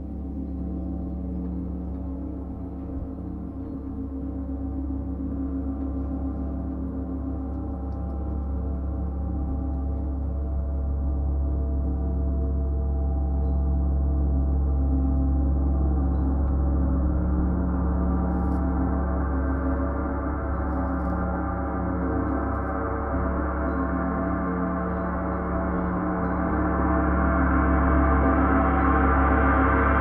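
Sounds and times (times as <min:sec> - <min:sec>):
gong ringing: 0:10.8 - 0:30.0.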